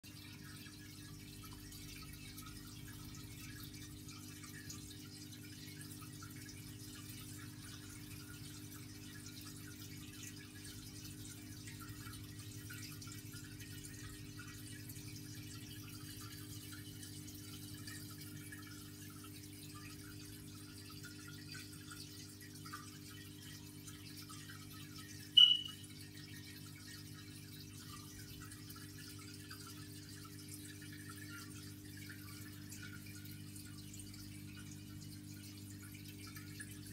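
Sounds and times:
water trickling and bubbling: 0:00.0 - 0:36.9
aquarium pump humming: 0:00.1 - 0:36.9
short high-pitched beep: 0:25.4 - 0:25.8.

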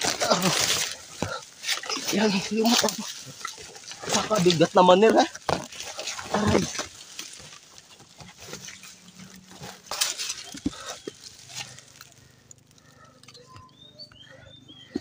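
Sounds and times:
low strained vocal hum: 0:00.0 - 0:04.5
firewood bundle rustling and knocking: 0:00.0 - 0:12.2.

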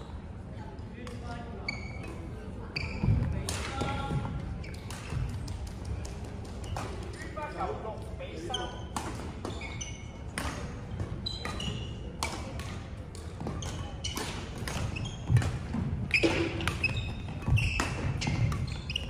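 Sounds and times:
rackets striking shuttlecocks: 0:10.3 - 0:19.0
shoes squeaking on wooden floor: 0:14.9 - 0:19.0.

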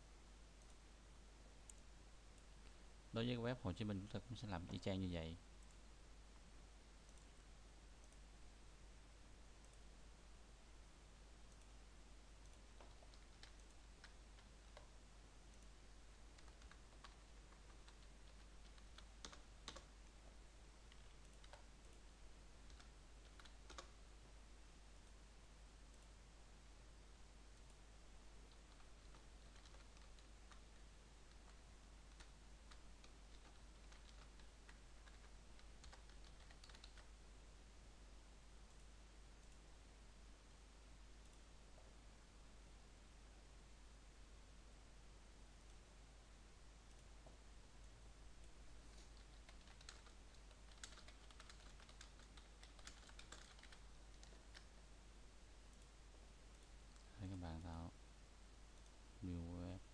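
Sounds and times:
low steady hum: 0:00.0 - 0:59.9
mouse clicks: 0:01.6 - 0:02.8
keyboard typing: 0:12.4 - 0:20.1, 0:20.8 - 0:22.0, 0:22.6 - 0:24.0, 0:28.4 - 0:37.2, 0:48.9 - 0:54.8.

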